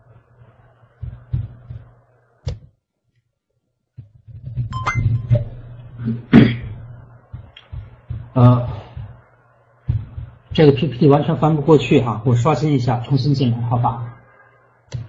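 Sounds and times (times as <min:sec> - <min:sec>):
low hum: 0:04.7 - 0:10.9
short ding-like tone: 0:04.8 - 0:05.4.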